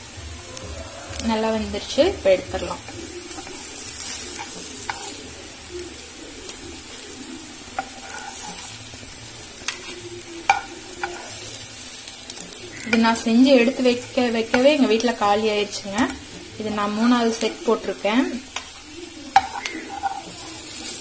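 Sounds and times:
patties sizzling in oil: 0.0s - 21.0s
spoon scraping a pan: 2.4s - 5.4s, 7.7s - 11.7s, 12.3s - 21.0s.

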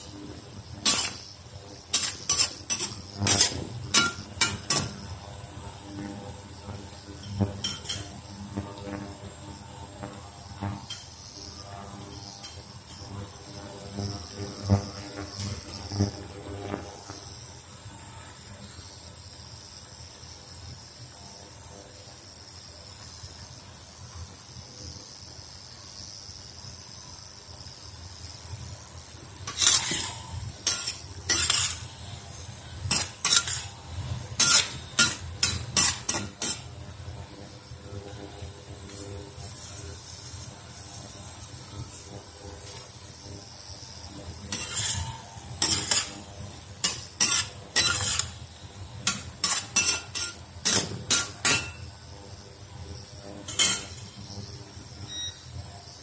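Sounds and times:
food sizzling: 0.0s - 17.6s, 28.2s - 54.4s
spatula scraping a wok: 0.8s - 5.1s, 7.2s - 8.1s, 29.4s - 36.8s, 44.3s - 51.9s, 53.4s - 54.2s.

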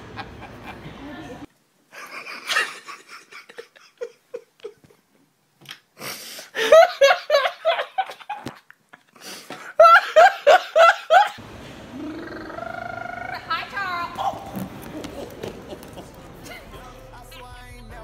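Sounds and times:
young man laughing hysterically: 0.0s - 1.0s, 1.9s - 5.1s, 6.5s - 11.4s, 14.9s - 16.8s.

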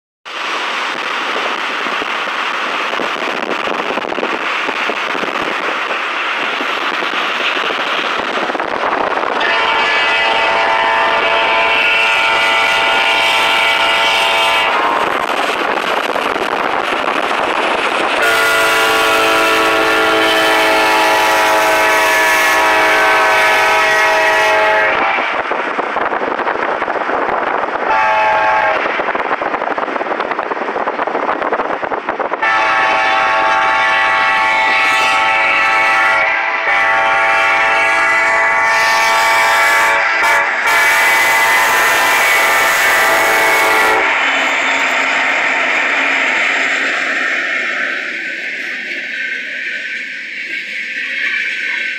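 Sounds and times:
freight train rumble: 0.2s - 51.9s
locomotive horn blasts: 9.4s - 15.0s, 18.2s - 25.4s, 27.9s - 28.9s, 32.4s - 44.3s.

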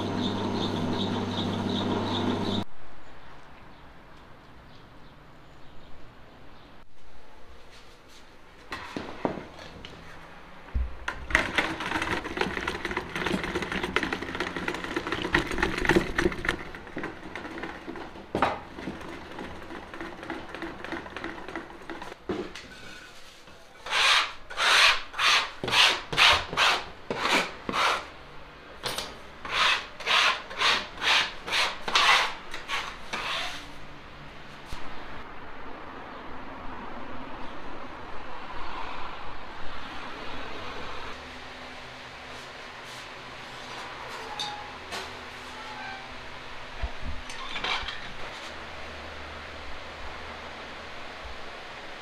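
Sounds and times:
metal rod churning in plastic bucket: 11.3s - 22.2s
metal blade scraping a worktable: 22.6s - 28.1s, 29.4s - 33.8s, 47.3s - 48.5s.

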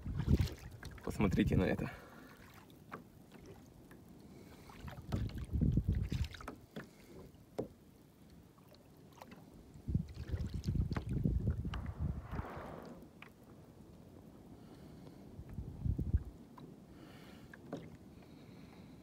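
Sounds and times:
water splashing against hull: 0.0s - 13.7s, 15.0s - 19.0s.

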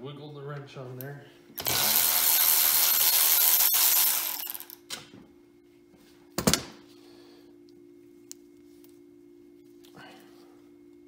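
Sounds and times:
faint steady hum: 0.0s - 11.0s
cordless electric ratchet running: 1.6s - 4.8s.

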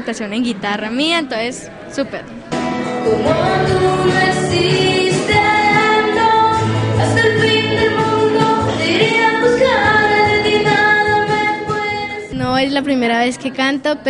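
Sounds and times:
girl singing into microphone: 3.1s - 12.8s.

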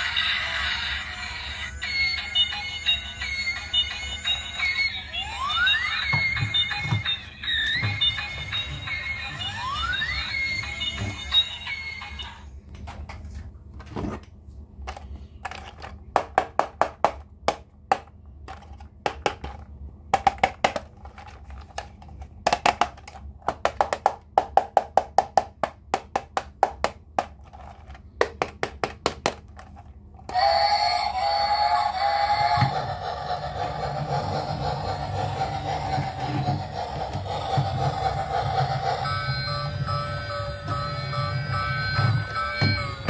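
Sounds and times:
whirring with held tone: 0.0s - 12.6s, 30.3s - 43.0s.

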